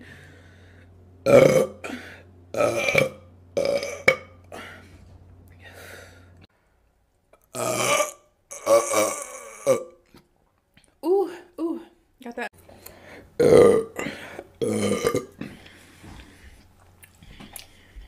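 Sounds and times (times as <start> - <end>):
woman belching: 1.2 - 4.4, 7.5 - 10.0, 13.4 - 15.4.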